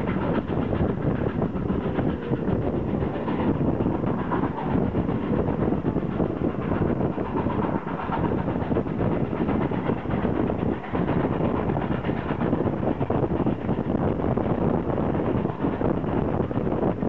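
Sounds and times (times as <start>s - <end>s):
moving air: 0.0s - 17.0s
train wheel and track noise: 0.0s - 17.0s.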